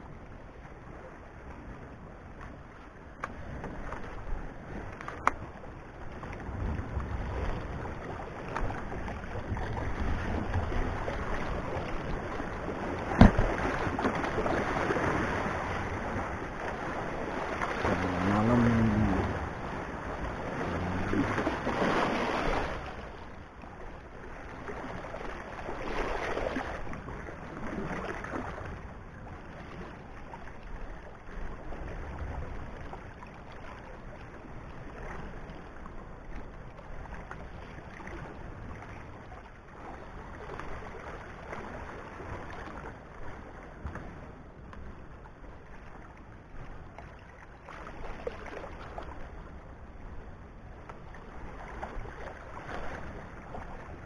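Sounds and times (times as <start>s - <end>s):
low steady rumble: 0.0s - 25.6s
waves lapping against stones: 3.2s - 23.3s.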